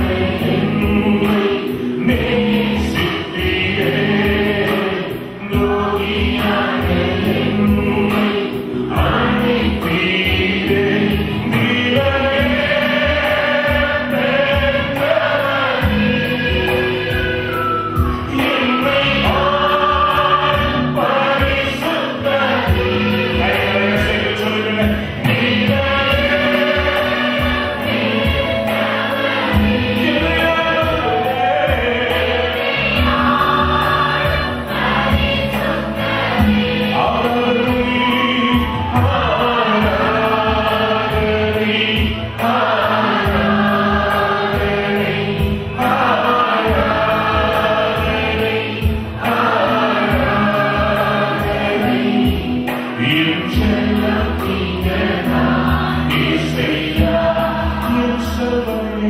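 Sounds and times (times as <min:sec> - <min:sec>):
man singing into microphone: 0:00.0 - 0:27.6, 0:30.0 - 0:33.2, 0:36.8 - 0:43.8, 0:45.7 - 0:48.4, 0:49.2 - 0:59.0
group of voices singing: 0:00.0 - 0:59.0
instrumental accompaniment: 0:00.0 - 0:59.0.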